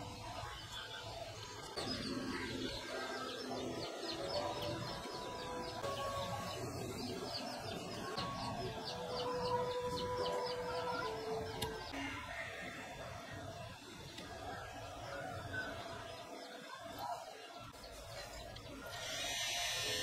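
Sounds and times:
birds chirping: 0.0s - 20.0s.

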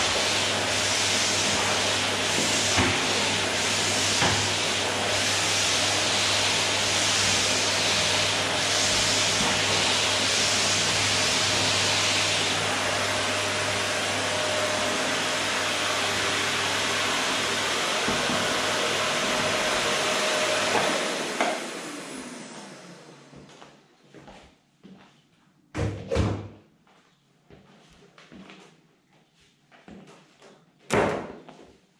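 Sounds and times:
vacuum cleaner humming: 0.0s - 23.8s.

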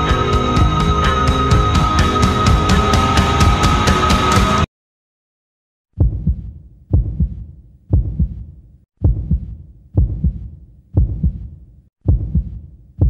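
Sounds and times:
heartbeat double thump: 6.0s - 8.4s, 9.0s - 12.6s.

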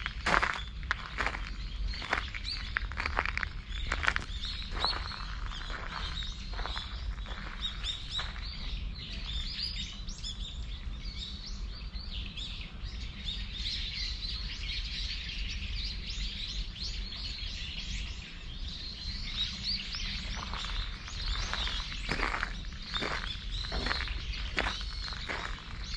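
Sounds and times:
footsteps on gravel: 0.0s - 8.7s, 19.4s - 25.9s
small birds chirping: 0.0s - 25.9s.

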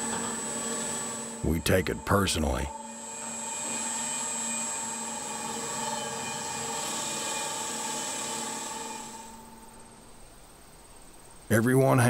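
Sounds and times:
electric motor humming and whining: 0.0s - 9.8s.

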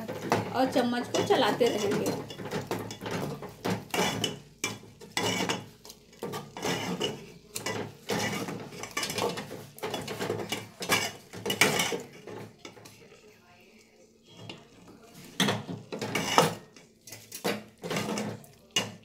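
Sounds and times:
spoon stirring in metal pot: 0.0s - 19.0s.

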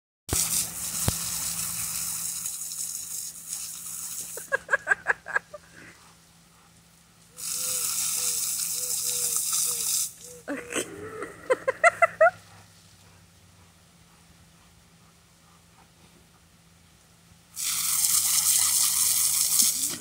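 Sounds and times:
garden hose spraying: 0.3s - 5.4s, 7.2s - 10.5s, 17.4s - 20.0s
soft short calls: 7.4s - 10.8s.

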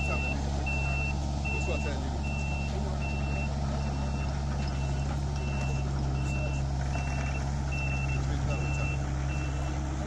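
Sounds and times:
backup alarm beeping: 0.0s - 9.7s
diesel engine drone: 0.0s - 10.0s.

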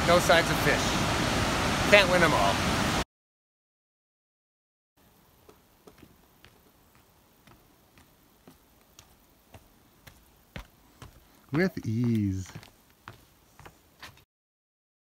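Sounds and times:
footsteps on wooden boardwalk: 5.3s - 14.2s.

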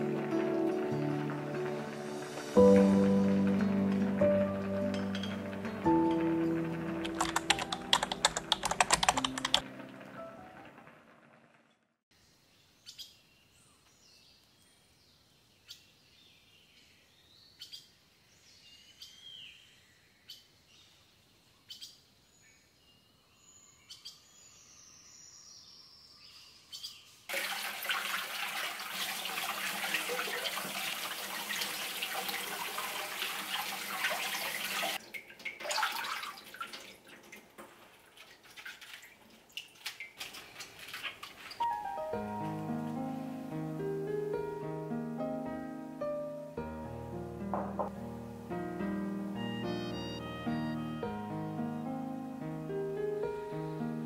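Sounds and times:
water splashing and dripping: 0.0s - 10.8s, 27.3s - 41.9s
small birds chirping: 12.2s - 27.3s
tap running into metal sink: 47.5s - 48.0s.

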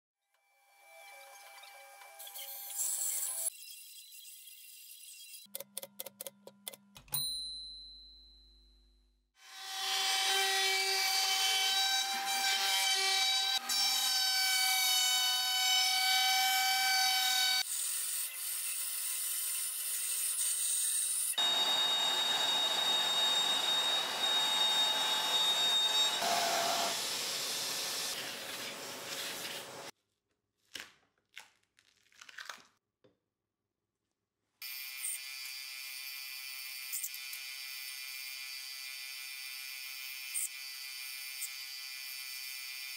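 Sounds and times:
jointer planing a board: 21.4s - 29.9s
router cutting with high whine: 21.4s - 29.9s.

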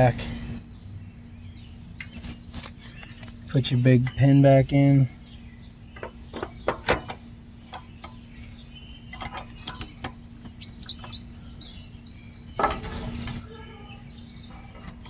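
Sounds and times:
faint steady hum: 0.0s - 15.0s
small birds chirping: 0.0s - 15.0s
metal clicks and clinks: 9.1s - 10.2s.

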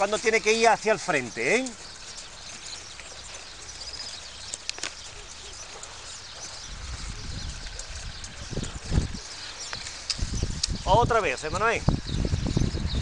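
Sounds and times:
faint bird chirps: 1.0s - 13.0s
low wind rumble on microphone: 3.7s - 13.0s.

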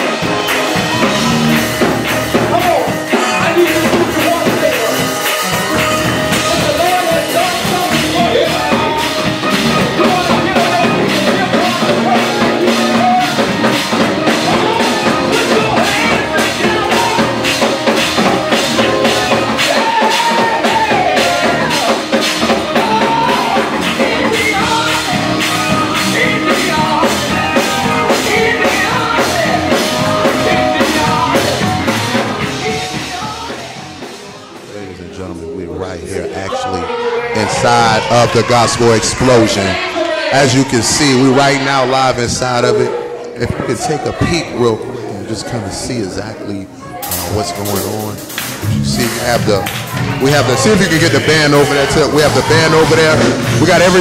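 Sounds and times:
gospel band with singer: 0.0s - 54.0s.

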